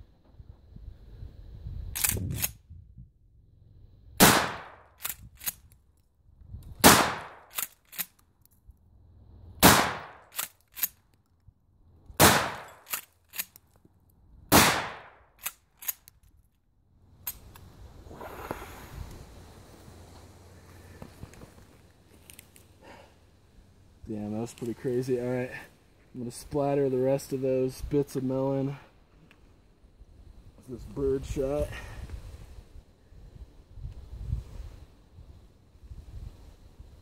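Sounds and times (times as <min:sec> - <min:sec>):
shotgun shots: 0:04.2 - 0:05.0, 0:06.8 - 0:07.7, 0:09.6 - 0:10.5, 0:12.2 - 0:13.0, 0:14.5 - 0:15.2
shotgun pump racking clacks: 0:12.7 - 0:13.6, 0:15.4 - 0:16.2.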